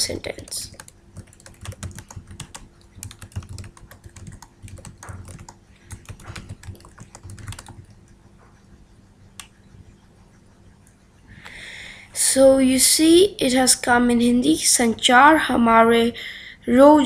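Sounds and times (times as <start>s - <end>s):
typing on computer keyboard: 0.0s - 8.0s.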